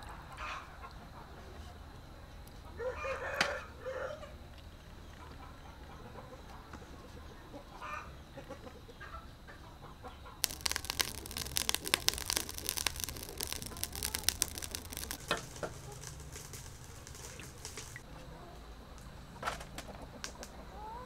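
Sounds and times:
fire crackling and popping: 10.4 - 18.0.

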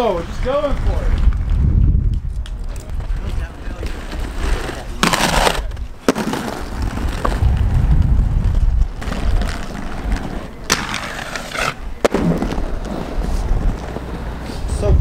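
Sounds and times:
inline skates rolling on pavement: 0.0 - 15.0
skates clacking on ledge: 9.0 - 14.6.

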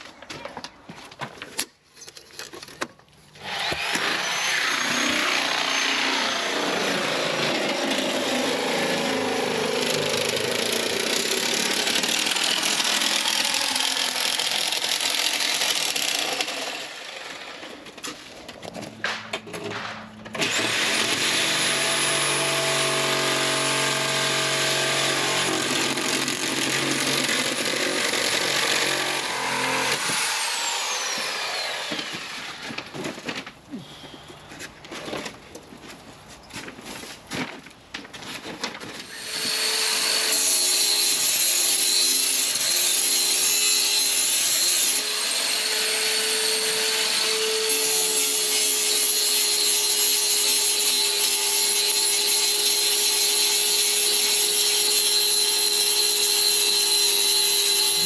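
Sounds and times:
power saw cutting: 3.4 - 17.9, 20.3 - 32.9, 39.0 - 58.0.

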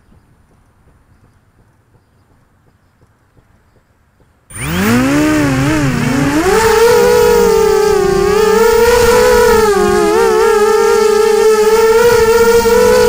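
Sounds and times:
quadcopter motors whining: 4.5 - 13.0.

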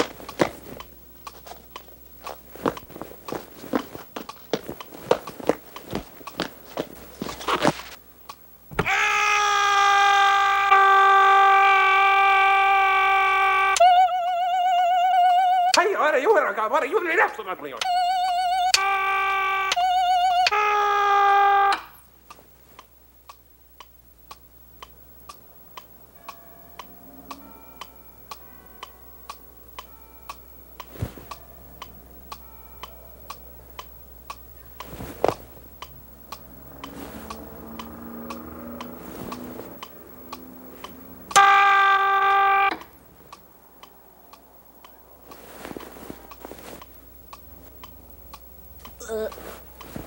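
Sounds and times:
mechanical ticking: 23.2 - 34.9, 35.7 - 41.5, 47.1 - 49.0
loud buzzing tone: 35.9 - 43.1.

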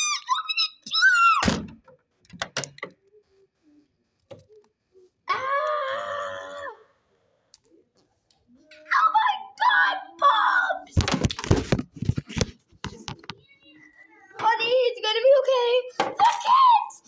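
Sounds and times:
drawn-out vocal wail: 5.3 - 7.0.

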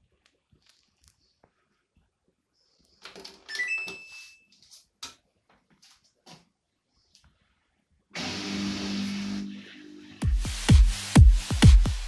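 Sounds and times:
washing machine start chime: 3.5 - 4.5
electronic music: 8.2 - 12.0.

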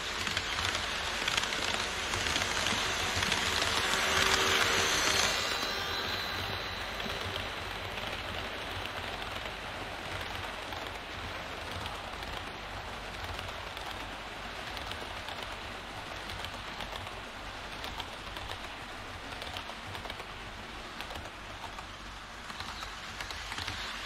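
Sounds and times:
model train wheels rattling: 0.0 - 11.0, 21.0 - 24.0.

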